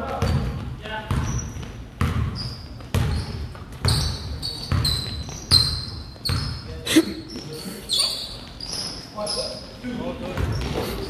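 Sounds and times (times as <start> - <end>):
basketball bouncing on hard court: 0.0 - 6.7.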